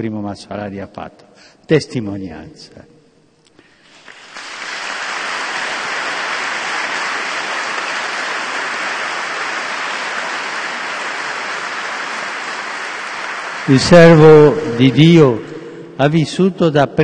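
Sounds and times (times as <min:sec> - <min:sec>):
audience applauding: 0:03.9 - 0:15.4.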